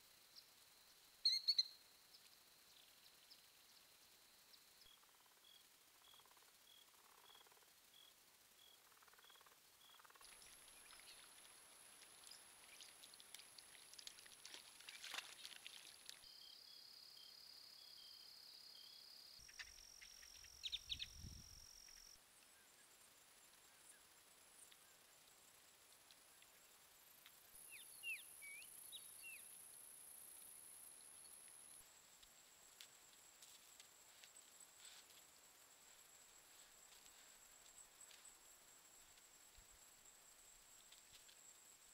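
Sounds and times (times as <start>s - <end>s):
insect chirps: 0.0s - 41.9s
small bird chirping: 1.2s - 3.8s, 4.5s - 13.0s, 16.2s - 22.7s, 27.6s - 29.5s
water splashing and dripping: 10.2s - 16.2s.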